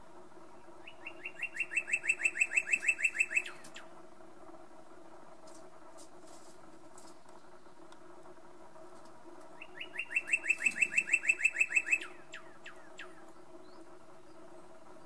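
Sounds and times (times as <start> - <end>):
faint low hum: 0.0 - 15.0
bird singing: 0.5 - 4.0, 9.6 - 15.0.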